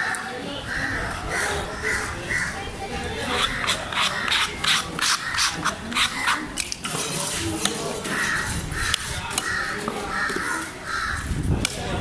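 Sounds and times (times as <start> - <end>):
crows cawing: 0.0 - 2.6, 8.1 - 11.3
knife scraping and cutting fish: 3.2 - 9.4.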